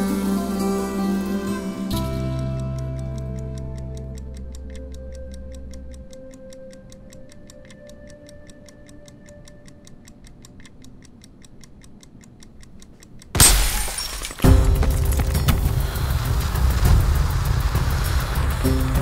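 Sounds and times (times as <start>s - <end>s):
soft music drone: 0.0s - 10.9s, 14.5s - 19.0s
wall clock ticking: 0.0s - 13.4s
loud crash: 13.4s - 19.0s.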